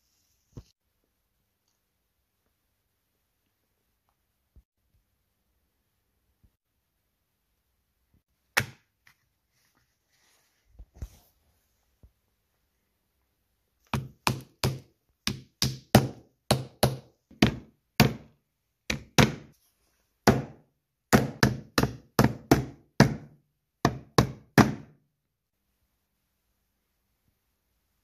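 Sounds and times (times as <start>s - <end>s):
hammer tapping nails into wood: 14.0s - 18.3s.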